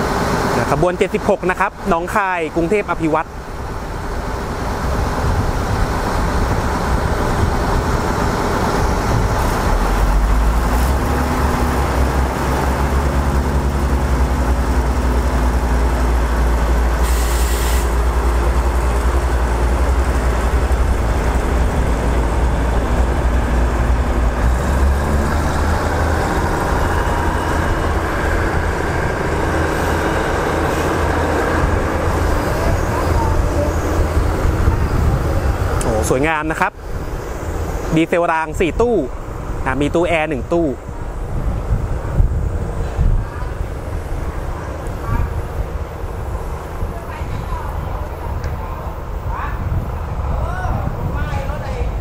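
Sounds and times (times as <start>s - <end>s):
diesel train engine rumble: 0.0s - 52.0s
short hiss: 17.0s - 18.0s.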